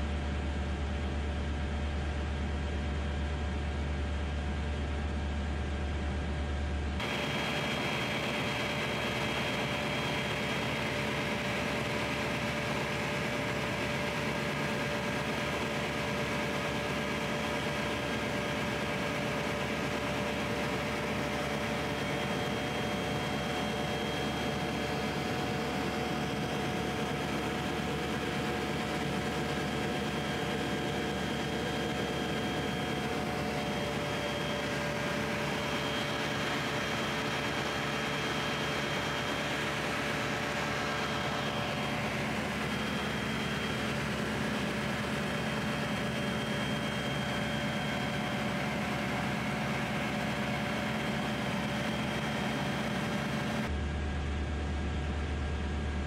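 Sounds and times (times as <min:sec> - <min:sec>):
aircraft engine and propeller drone: 0:00.0 - 0:56.0.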